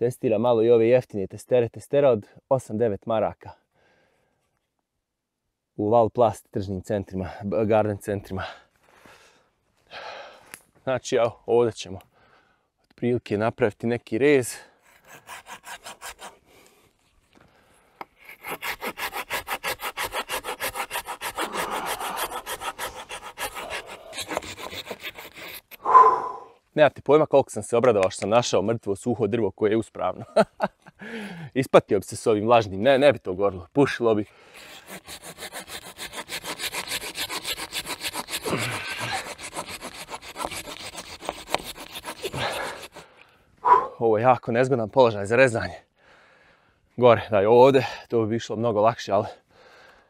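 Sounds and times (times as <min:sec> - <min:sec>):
hand saw cutting wood: 0:14.8 - 0:16.4, 0:18.1 - 0:25.8, 0:34.5 - 0:43.1.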